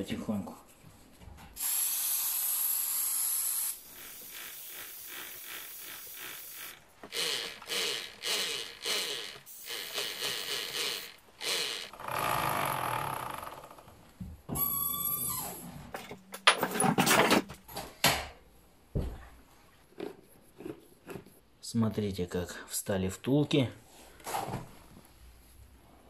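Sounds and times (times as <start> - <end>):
aerosol spray hissing: 1.6 - 7.8.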